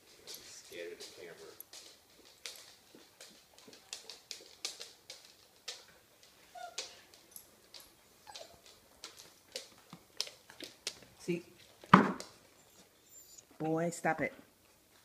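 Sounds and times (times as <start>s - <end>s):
small dogs playing clicks and scuffs: 0.0s - 13.0s
dog squeak: 12.6s - 13.5s.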